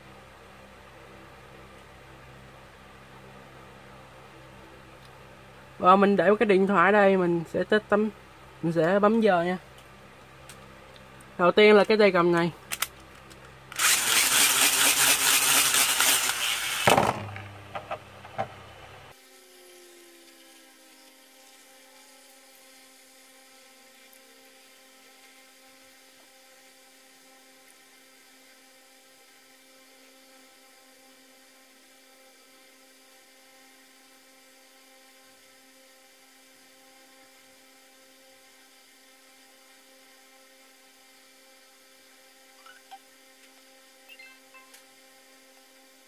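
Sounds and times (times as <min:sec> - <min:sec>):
spinning top high whine: 0:13.7 - 0:17.0.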